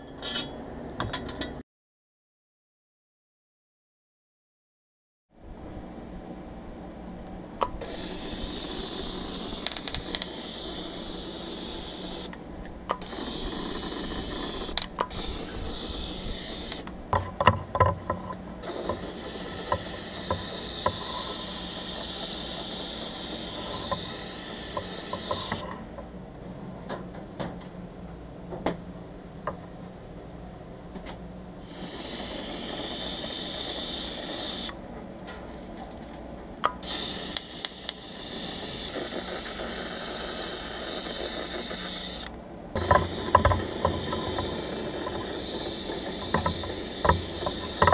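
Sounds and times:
compressed air hissing from spray gun: 0:07.8 - 0:12.4, 0:13.0 - 0:17.1, 0:18.6 - 0:25.9, 0:31.6 - 0:34.8, 0:36.8 - 0:47.9.

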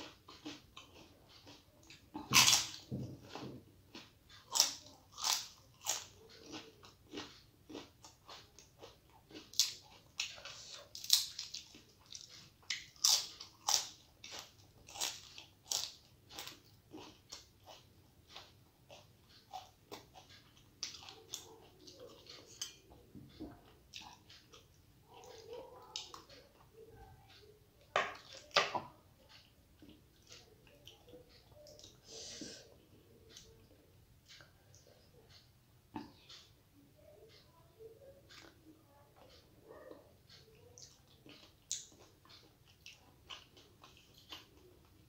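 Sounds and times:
crisp crunching while chewing: 0:00.0 - 0:22.8.

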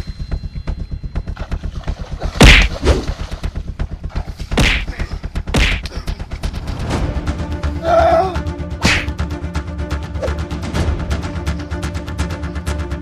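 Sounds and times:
punch sound effects: 0:02.4 - 0:03.0, 0:04.6 - 0:05.8, 0:08.8 - 0:09.1.

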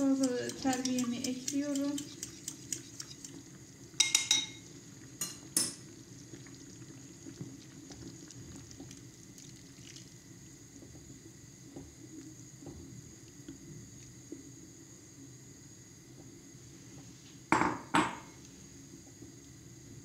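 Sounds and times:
utensils clinking against pot: 0:00.0 - 0:03.3, 0:04.0 - 0:04.6
soup simmering in a pot: 0:00.0 - 0:20.0.

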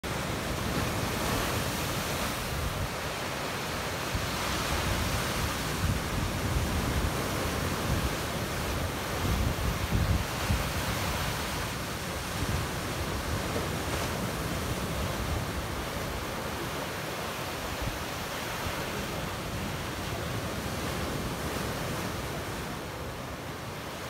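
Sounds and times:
wind buffeting microphone: 0:04.0 - 0:16.5.

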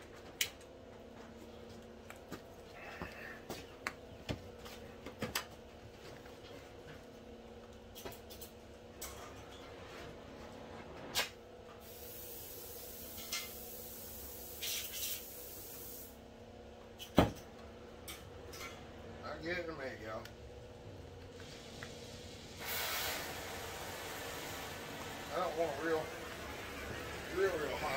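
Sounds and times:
high hiss: 0:11.8 - 0:16.2, 0:22.5 - 0:27.9.

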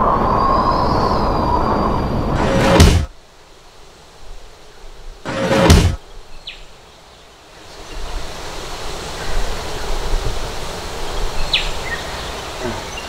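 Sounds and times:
wind: 0:00.0 - 0:13.0
loud whoosh: 0:02.3 - 0:03.1, 0:05.3 - 0:06.0.

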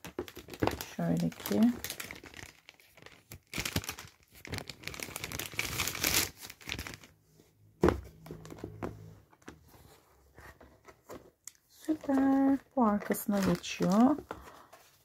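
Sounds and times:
plastic wrap crinkling: 0:00.0 - 0:07.2, 0:11.8 - 0:15.0.

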